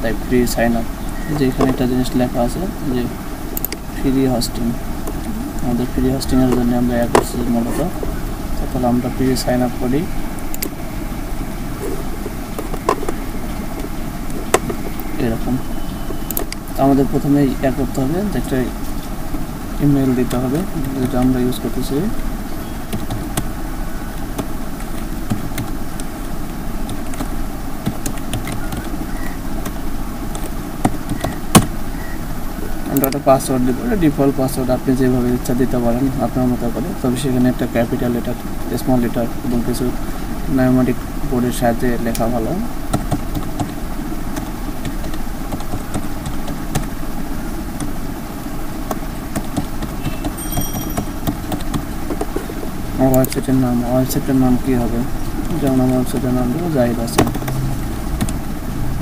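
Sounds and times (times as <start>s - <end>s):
low rumble and hum: 0.0s - 30.8s.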